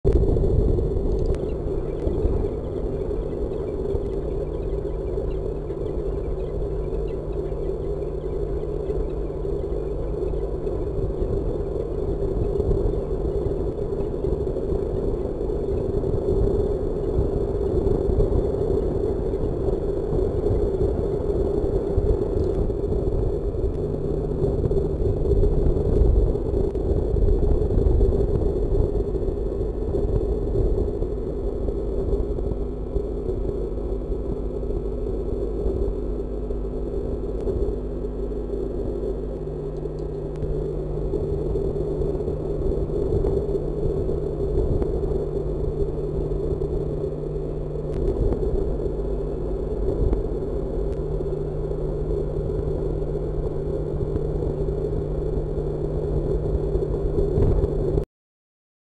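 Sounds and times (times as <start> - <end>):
low rumbling noise: 0.0 - 58.0
faint steady hum: 0.0 - 58.1.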